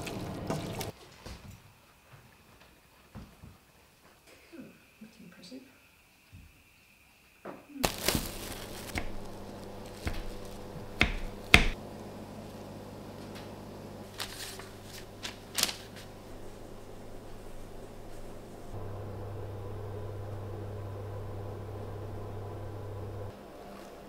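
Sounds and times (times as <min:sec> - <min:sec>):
steady low hum: 0:07.8 - 0:23.3.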